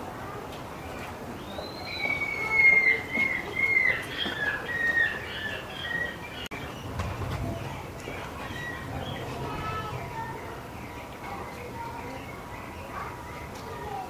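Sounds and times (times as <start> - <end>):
bird whistled calls: 1.4 - 6.8.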